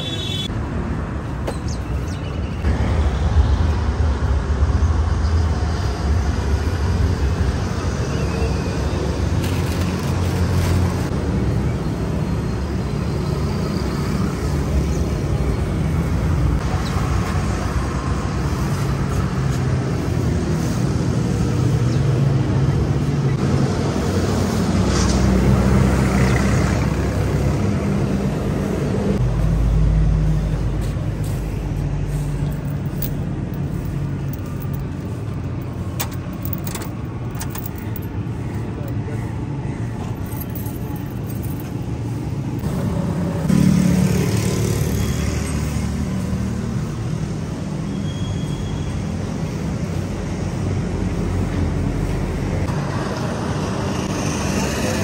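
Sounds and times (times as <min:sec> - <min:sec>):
traffic engines rumbling: 0:00.0 - 0:55.0.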